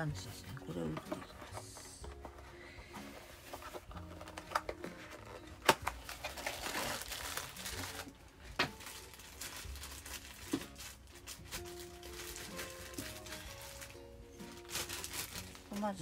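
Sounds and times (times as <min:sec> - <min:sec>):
crinkling: 0:03.1 - 0:16.0.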